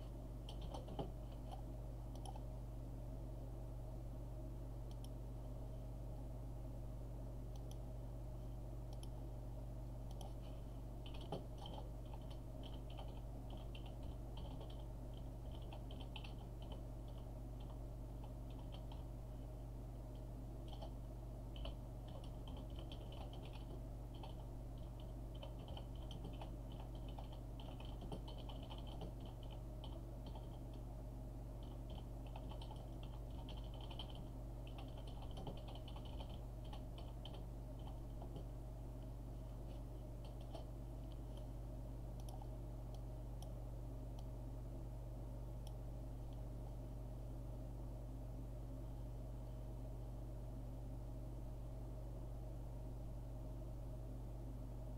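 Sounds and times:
steady low hum: 0:00.0 - 0:54.9
keyboard typing: 0:00.4 - 0:02.5, 0:10.1 - 0:19.1, 0:20.6 - 0:21.0, 0:21.6 - 0:30.8, 0:31.6 - 0:38.5, 0:40.2 - 0:41.5, 0:42.2 - 0:42.5.

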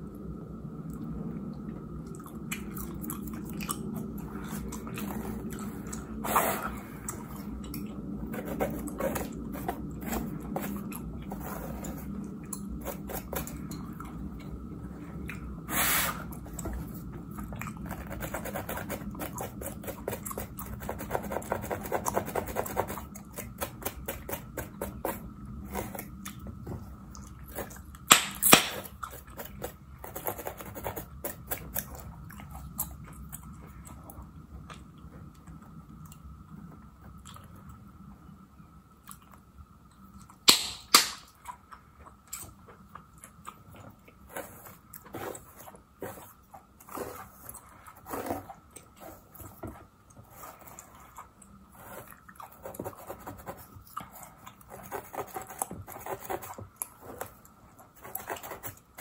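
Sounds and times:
gum chewing and smacking: 0:02.0 - 0:06.2, 0:16.3 - 0:22.2, 0:41.3 - 0:58.9.

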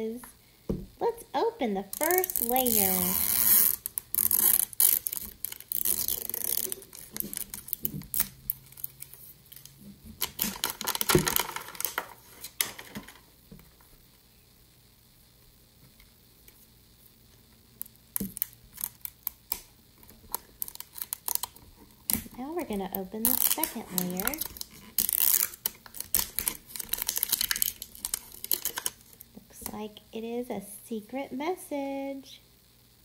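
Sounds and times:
tape tab peeling: 0:01.9 - 0:12.7, 0:17.8 - 0:29.7
plastic wrapper rustling and tearing: 0:01.9 - 0:13.2, 0:17.8 - 0:29.3.

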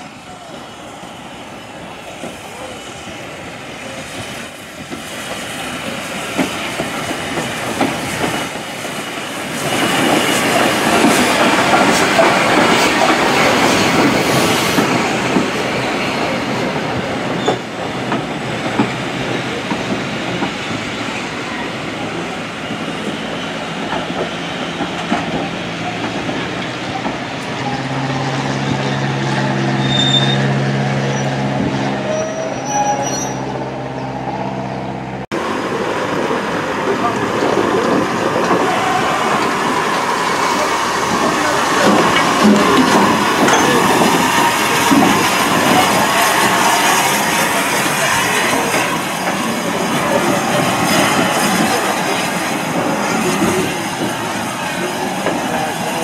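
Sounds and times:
steam locomotive passing: 0:00.0 - 0:56.0
train wheel squeal: 0:17.3 - 0:17.6, 0:27.4 - 0:31.4, 0:32.0 - 0:34.1, 0:40.4 - 0:52.0
wheels clicking over rail joints: 0:41.0 - 0:46.6.

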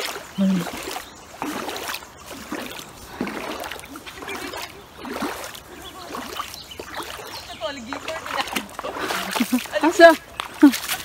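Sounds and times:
shallow river trickling: 0:00.0 - 0:11.0.

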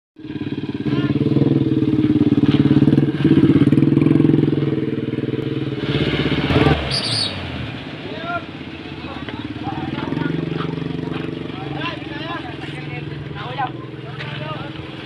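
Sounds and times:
vehicle engine throbbing: 0:00.2 - 0:15.0.

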